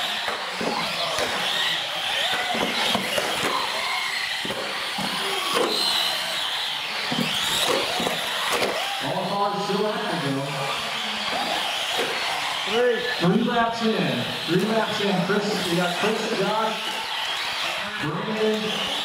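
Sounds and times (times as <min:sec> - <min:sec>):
tyre noise on concrete: 0:00.0 - 0:08.9
toy car electric motors whining: 0:00.0 - 0:19.0.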